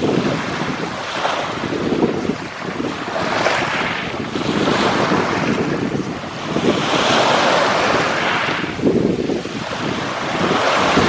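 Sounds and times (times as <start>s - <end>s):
surf washing over pebbles: 0.0s - 11.0s
wind on the microphone: 0.0s - 11.0s.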